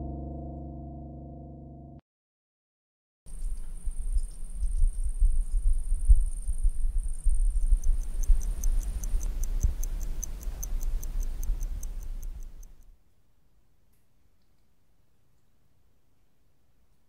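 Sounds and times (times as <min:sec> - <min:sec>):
low rumble: 0:00.0 - 0:02.0
rapid high-pitched ticking: 0:03.4 - 0:12.9.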